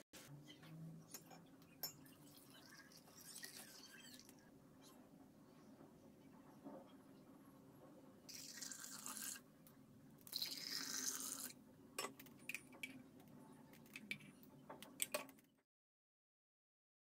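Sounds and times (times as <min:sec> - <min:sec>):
soup pouring into glass cups: 0:01.0 - 0:04.5, 0:08.3 - 0:09.5, 0:10.2 - 0:11.6.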